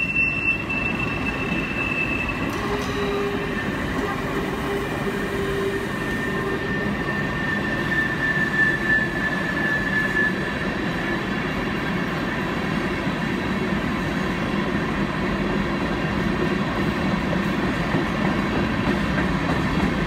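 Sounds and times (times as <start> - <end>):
high-pitched wheel squeal: 0.0 - 11.2
freight train wheels rumbling: 0.0 - 20.0.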